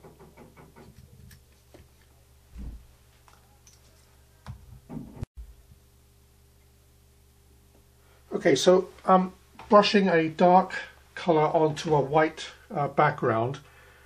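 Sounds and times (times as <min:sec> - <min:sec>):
soft thud: 0:02.6 - 0:02.8.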